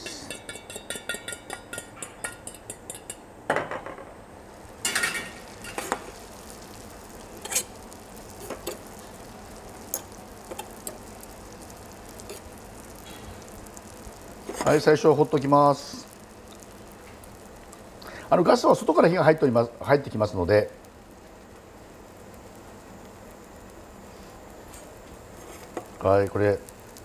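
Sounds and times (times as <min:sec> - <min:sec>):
butter sizzling in a pan: 0:00.0 - 0:03.4, 0:04.4 - 0:27.0
utensil scraping and tapping: 0:00.3 - 0:03.2, 0:25.4 - 0:26.0.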